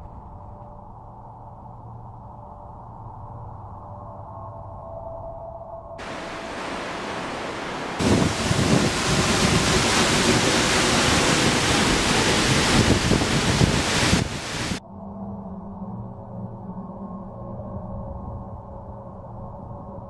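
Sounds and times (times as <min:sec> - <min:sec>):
waterfall rushing: 0:06.0 - 0:14.8.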